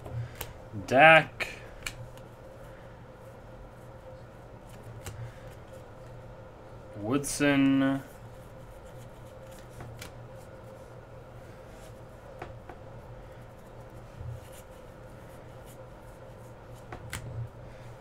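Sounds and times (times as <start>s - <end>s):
steady low hum: 0.0s - 18.0s
light clicks of cards: 1.8s - 2.3s, 4.7s - 6.2s
cards sliding and rubbing: 8.1s - 10.9s, 13.4s - 17.4s.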